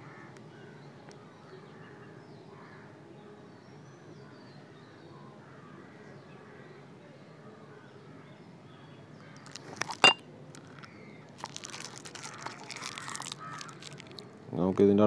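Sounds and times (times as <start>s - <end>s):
rustling wires: 9.4s - 14.4s.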